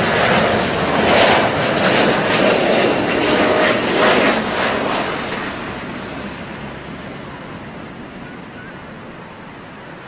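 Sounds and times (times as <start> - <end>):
jet airliner passing overhead: 0.0 - 10.0.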